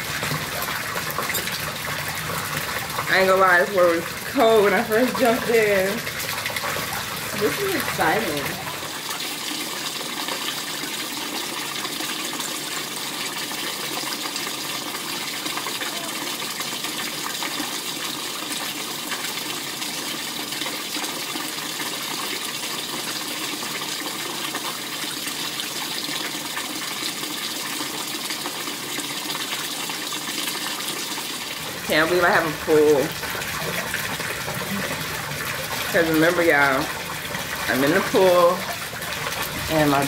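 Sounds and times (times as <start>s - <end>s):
waterfall pouring into pool: 0.0s - 40.0s.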